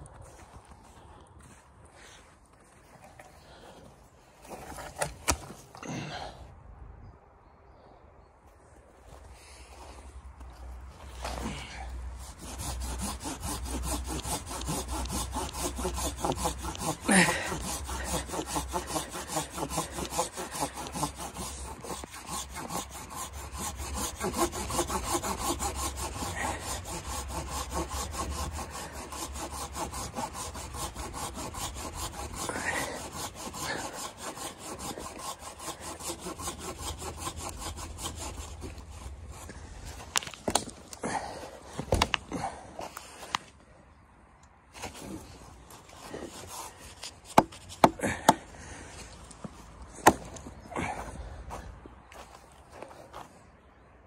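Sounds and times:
hand saw cutting log: 4.4 - 6.0, 10.5 - 43.5, 44.7 - 53.3.

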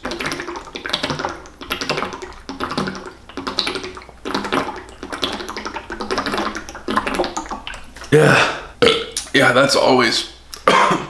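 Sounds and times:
person gulping water: 0.0 - 9.4, 10.5 - 11.0
water glugging in jug: 0.0 - 9.5.

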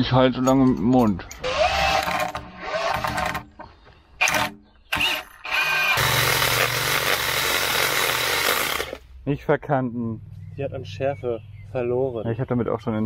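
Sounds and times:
cordless drill driving a screw: 1.4 - 3.4, 4.2 - 9.0
chainsaw cutting tree trunk: 5.0 - 9.0.

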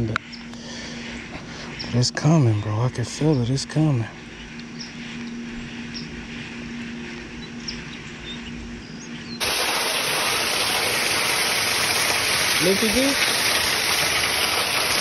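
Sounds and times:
steady low hum: 0.0 - 15.0
loud steady hiss: 9.4 - 15.0.

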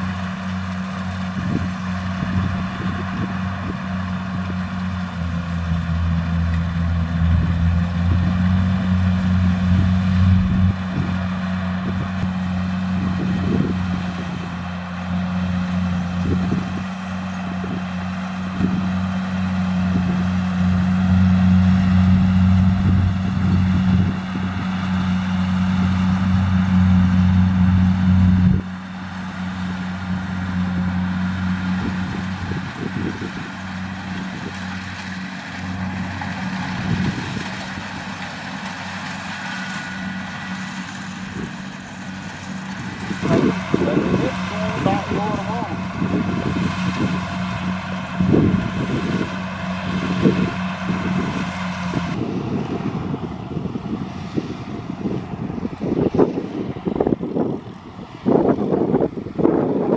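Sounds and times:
diesel engine drone: 0.0 - 59.9.

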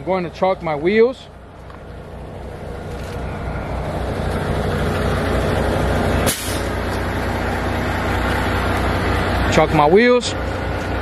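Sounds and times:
diesel engine idling: 0.0 - 11.0
brief sharp burst: 6.2 - 6.8.

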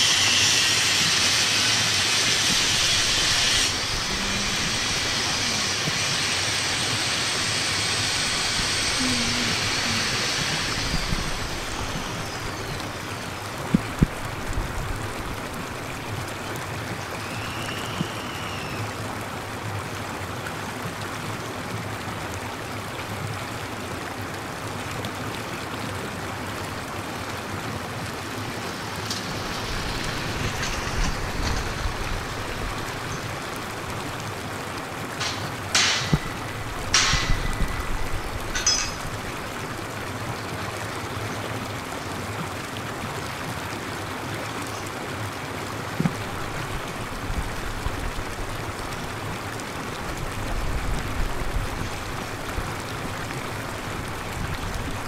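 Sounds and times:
falling water rushing: 0.0 - 55.0
sharp knocks: 35.2 - 39.2.

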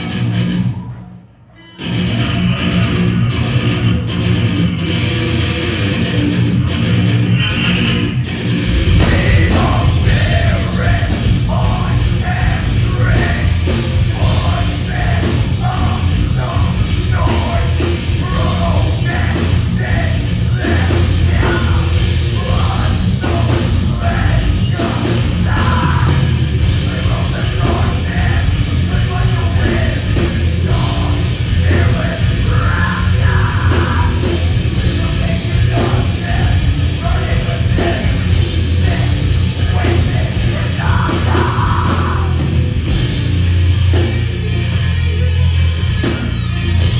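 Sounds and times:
drums: 0.0 - 46.9
heavy metal band playing live: 0.0 - 46.9
singer yelling and singing: 5.9 - 42.6.

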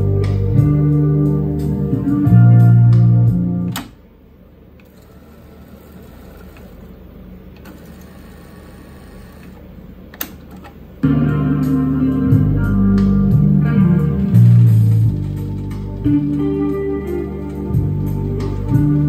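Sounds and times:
music playing from tape: 0.0 - 3.9, 11.0 - 19.0.

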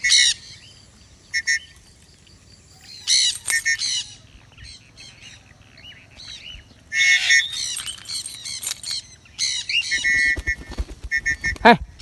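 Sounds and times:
parrots squawking: 0.0 - 0.7, 2.8 - 5.2.

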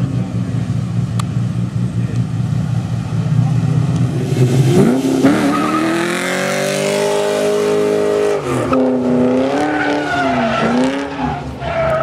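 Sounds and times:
car engine revving: 0.0 - 12.0.

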